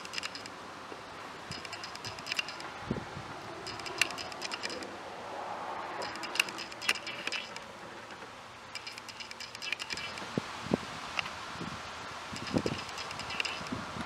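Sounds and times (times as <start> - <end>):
short ticks: 1.5 - 2.7, 3.6 - 4.9, 6.0 - 8.2, 12.4 - 13.8
buzzy chirps: 6.0 - 7.6.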